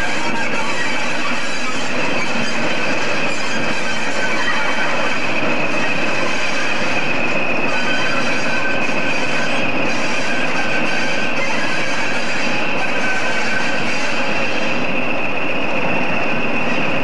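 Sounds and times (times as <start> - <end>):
diesel locomotive engine drone: 0.0 - 17.0
high-pitched whine: 0.0 - 17.0.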